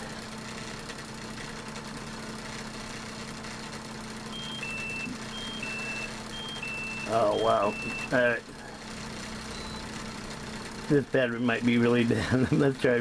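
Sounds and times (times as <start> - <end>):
electrical hum: 0.0 - 13.0
two-pitch alarm beeping: 4.3 - 8.2, 9.5 - 9.9.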